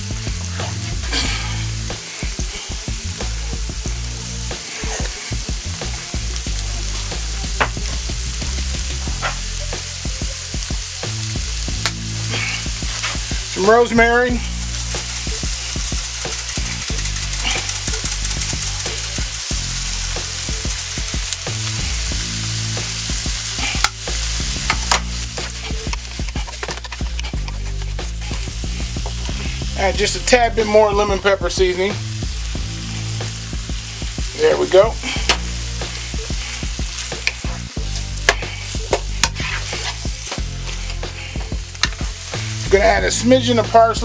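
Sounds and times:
food sizzling in a frying pan: 0:00.0 - 0:44.0
wooden spoon scraping a pan: 0:08.7 - 0:09.8, 0:12.2 - 0:13.5, 0:22.9 - 0:29.8, 0:34.4 - 0:42.7.

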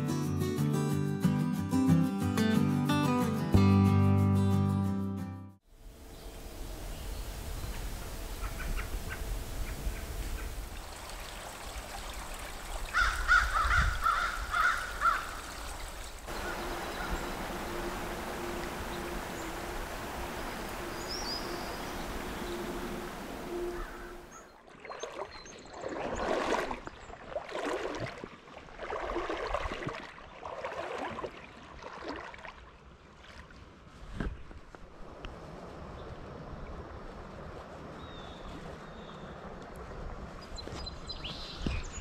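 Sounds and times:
bird harsh caw-like calls: 0:12.9 - 0:15.5, 0:16.3 - 0:17.8, 0:23.5 - 0:24.5
river water rushing: 0:14.9 - 0:24.4.

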